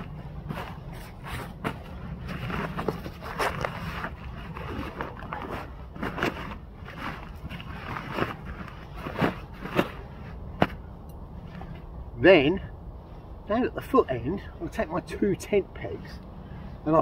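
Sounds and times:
fabric bag rustling and crinkling: 0.0 - 10.4
steady low rumble: 0.0 - 17.0.

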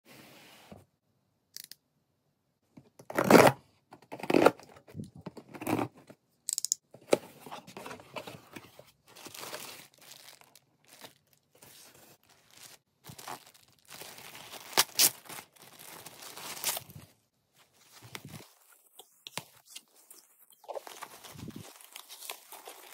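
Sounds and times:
plastic bag crinkling: 9.2 - 11.6, 12.2 - 17.0
packing tape tearing off box: 14.5 - 15.5.

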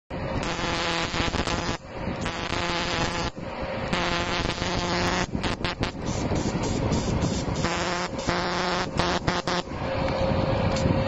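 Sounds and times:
welding arc buzzing and hissing: 0.4 - 9.8.

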